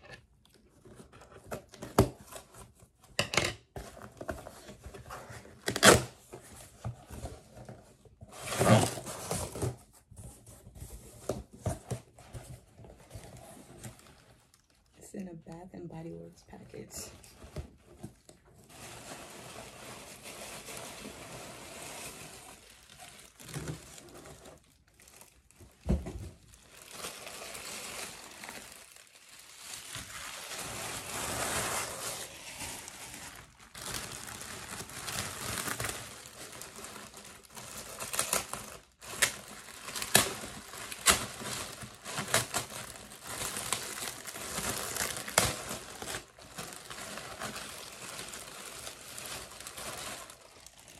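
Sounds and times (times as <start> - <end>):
tissue paper rustling: 17.1 - 25.8, 26.4 - 50.9
plastic bag crinkling: 18.6 - 25.8, 26.4 - 50.9.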